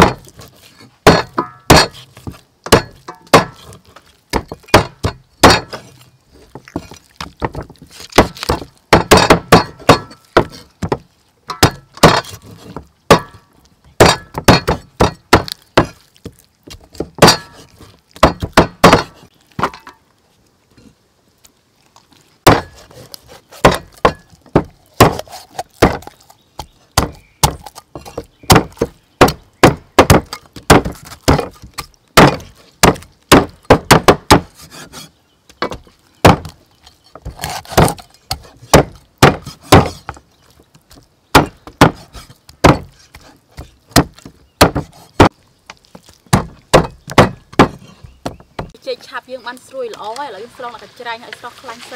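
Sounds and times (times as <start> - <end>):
cleaver chopping on wooden block: 0.0 - 0.4, 1.0 - 5.9, 6.8 - 13.4, 14.0 - 16.0, 16.7 - 19.7, 22.4 - 35.0, 35.6 - 36.6, 37.2 - 40.2, 41.3 - 45.4, 46.3 - 48.8.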